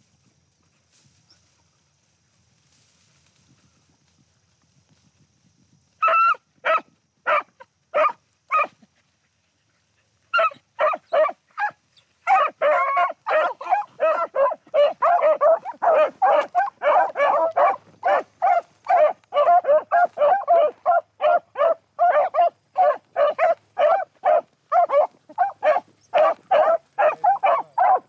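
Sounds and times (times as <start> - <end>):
dogs baying and barking: 6.0 - 28.0.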